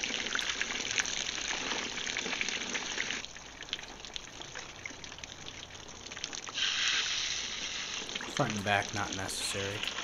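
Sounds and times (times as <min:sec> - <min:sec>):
hose water spraying and splashing: 0:06.5 - 0:10.0.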